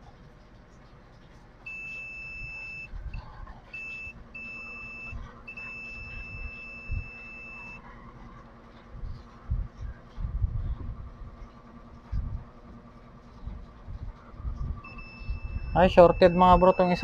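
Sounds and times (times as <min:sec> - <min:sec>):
multimeter continuity beep: 0:01.7 - 0:07.8, 0:14.8 - 0:17.0.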